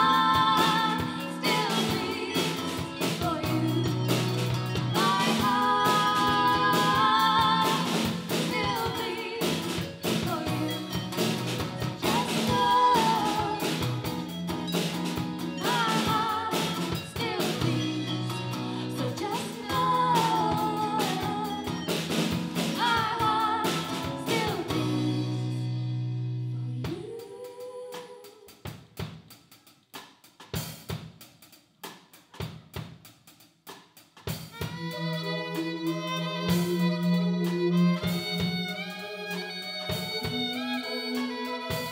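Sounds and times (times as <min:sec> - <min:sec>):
woman singing: 0:00.0 - 0:14.4, 0:15.5 - 0:25.8, 0:26.8 - 0:28.6
acoustic guitar: 0:00.0 - 0:26.9
drum kit: 0:00.0 - 0:41.9.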